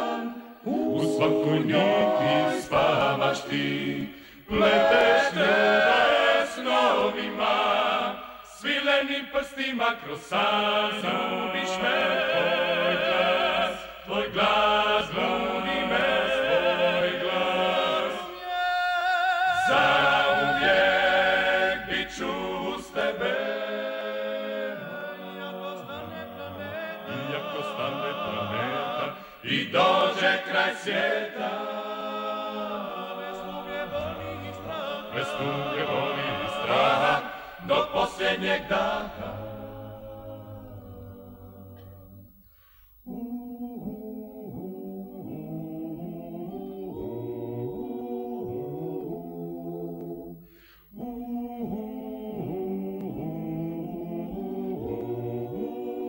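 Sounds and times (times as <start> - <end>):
men singing in harmony: 0.0 - 42.0, 50.9 - 56.0.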